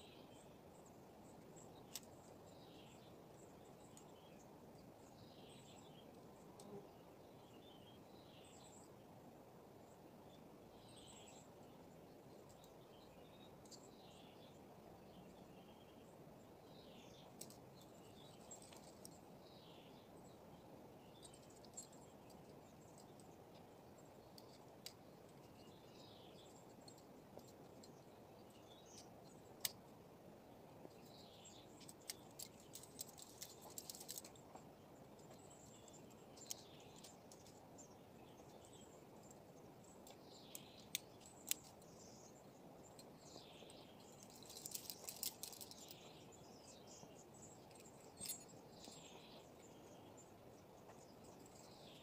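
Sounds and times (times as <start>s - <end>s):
faint outdoor rush: 0.0s - 52.0s
bird chirps: 30.8s - 52.0s.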